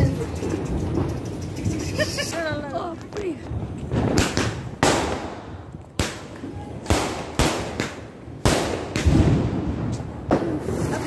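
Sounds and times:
firecracker bangs: 0:03.9 - 0:11.0.

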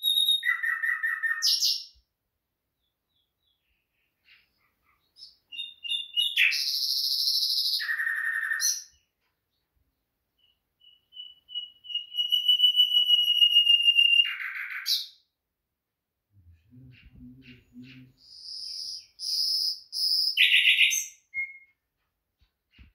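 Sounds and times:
nightingale singing: 0:00.0 - 0:02.0, 0:02.8 - 0:09.0, 0:10.4 - 0:15.3, 0:16.4 - 0:21.8.

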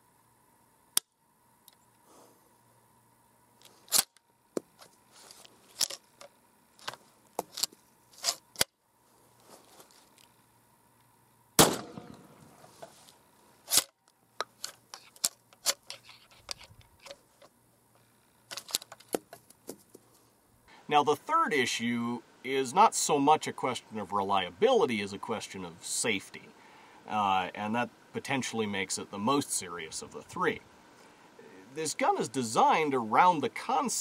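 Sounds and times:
gunshot with echo: 0:11.6 - 0:12.3.

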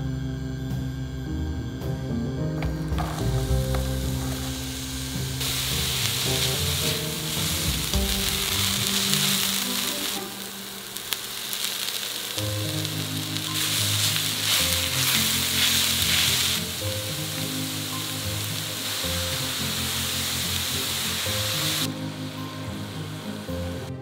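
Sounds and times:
background music: 0:00.0 - 0:24.0
onion sizzling in hot oil: 0:03.0 - 0:24.0
wooden spatula stirring: 0:13.3 - 0:21.2.

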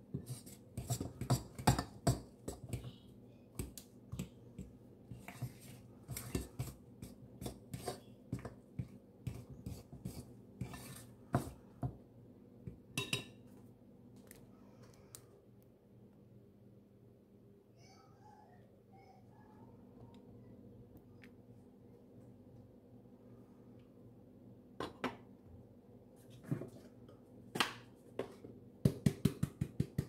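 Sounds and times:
dough knocking against ceramic bowl: 0:28.2 - 0:30.0.

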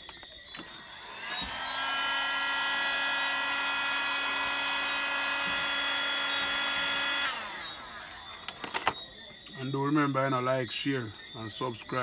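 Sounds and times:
heat gun motor whining: 0:00.0 - 0:09.6.

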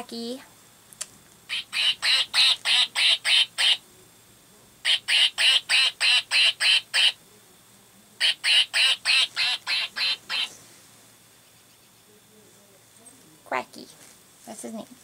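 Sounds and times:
toy duck quacking: 0:01.5 - 0:03.8, 0:04.8 - 0:07.2, 0:08.2 - 0:10.5.

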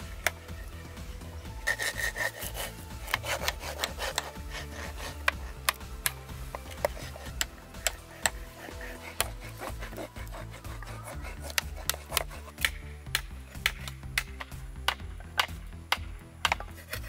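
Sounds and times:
paper being rubbed and scraped: 0:01.6 - 0:05.2, 0:08.0 - 0:12.6
sharp clicks and light taps: 0:05.2 - 0:08.4, 0:11.4 - 0:16.8.

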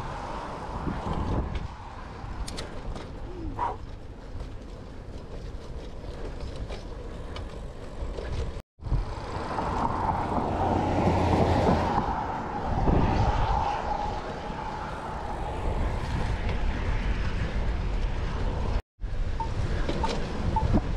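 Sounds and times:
wind on microphone: 0:00.0 - 0:03.9, 0:09.8 - 0:20.9
bicycle tyre noise: 0:00.0 - 0:20.9.

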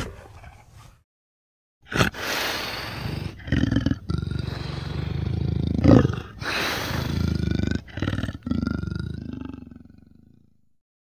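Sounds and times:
leopard rasping roars: 0:01.9 - 0:10.2.

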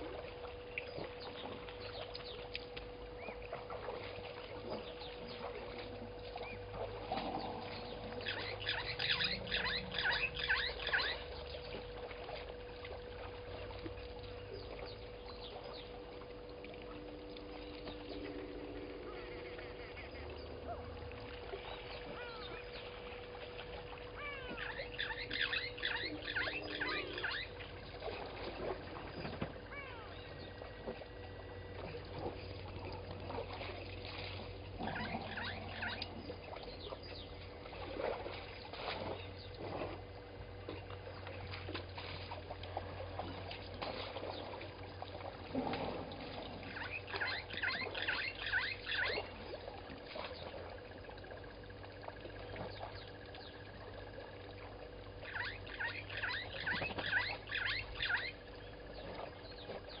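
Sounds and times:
steady hum: 0:00.0 - 1:00.0
bird calling in quick notes: 0:07.6 - 0:11.5, 0:17.9 - 0:20.9, 0:21.6 - 0:22.9.

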